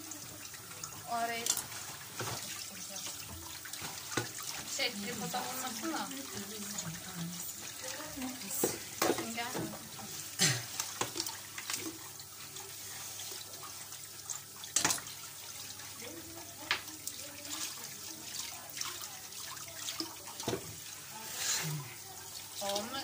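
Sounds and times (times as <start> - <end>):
tap running into sink: 1.4 - 7.0, 8.2 - 12.0, 14.6 - 15.2, 16.6 - 17.2, 20.0 - 20.8
kitchenware knocking and clinking: 8.6 - 9.8.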